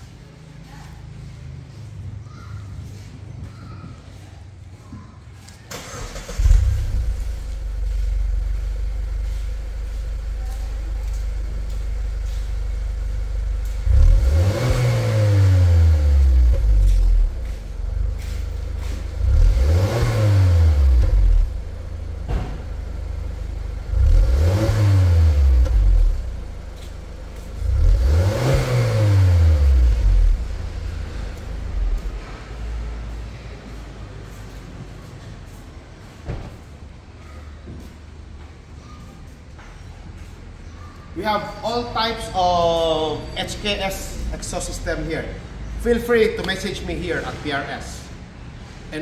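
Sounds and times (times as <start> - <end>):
car engine idling and revving: 5.7 - 35.6, 43.0 - 49.0.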